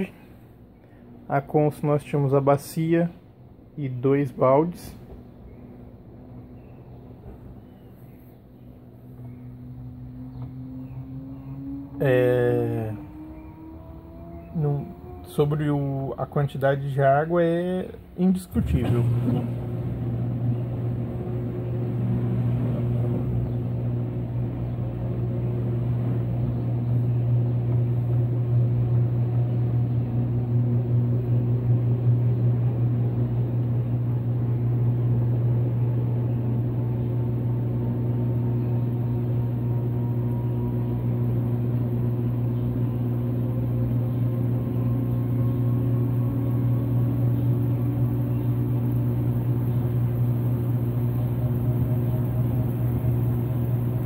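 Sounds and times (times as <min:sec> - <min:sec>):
washing machine spinning: 0:00.0 - 0:54.0.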